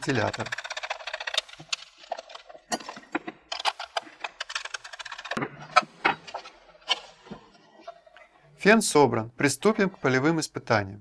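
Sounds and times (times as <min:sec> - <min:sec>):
small metal parts clicking and scraping: 0:00.0 - 0:08.2.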